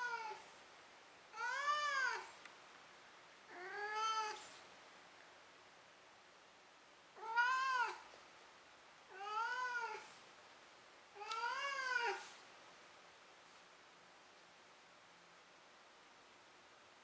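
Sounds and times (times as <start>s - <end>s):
cat meowing: 0.0s - 0.4s, 1.3s - 2.3s, 3.5s - 4.5s, 7.2s - 8.1s, 9.1s - 10.1s, 11.2s - 12.3s.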